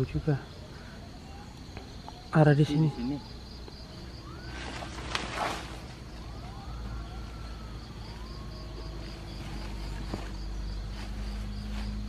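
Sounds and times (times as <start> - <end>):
insects chirping: 0.0 - 12.0
rustle of dry grass and leaves: 4.2 - 6.5, 7.2 - 12.0.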